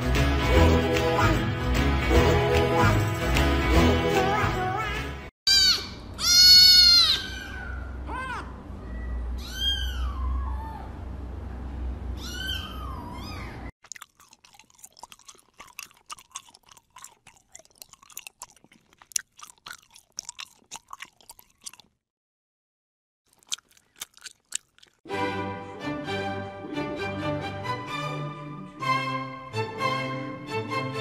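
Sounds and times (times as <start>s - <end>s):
kitten meowing: 5.5s - 10.9s, 12.2s - 13.6s
kitten sucking milk bottle: 13.8s - 21.9s, 23.3s - 25.0s.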